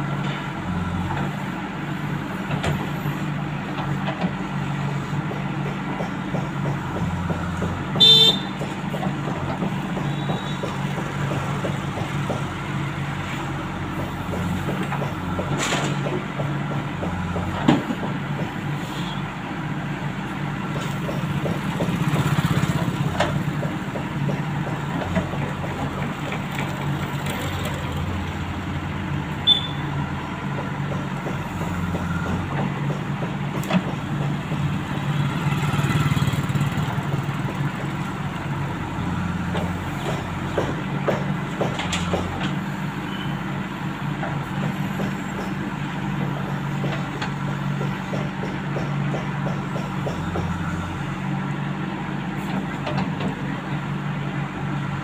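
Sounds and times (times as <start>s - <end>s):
diesel engine running: 0.0s - 55.0s
backhoe digging soil: 20.2s - 55.0s.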